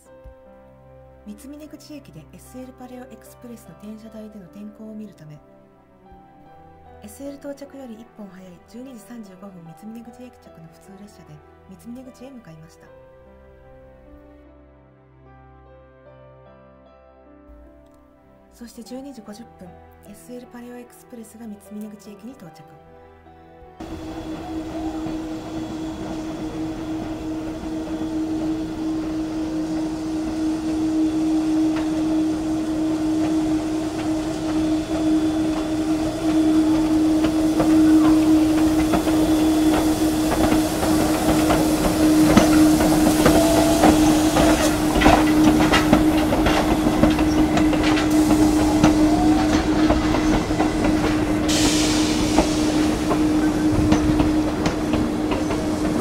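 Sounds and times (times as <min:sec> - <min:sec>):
steady low hum: 0:23.8 - 0:56.0
steam hissing: 0:23.8 - 0:56.0
wheels clicking over rail joints: 0:23.8 - 0:56.0.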